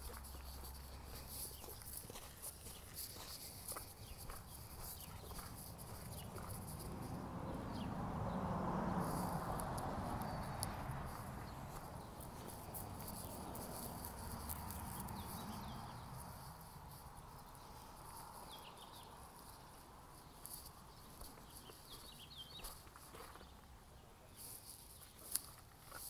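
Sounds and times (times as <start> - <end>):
footsteps on gravel: 0.0 - 7.7, 8.6 - 16.2, 20.2 - 23.7, 24.3 - 26.0.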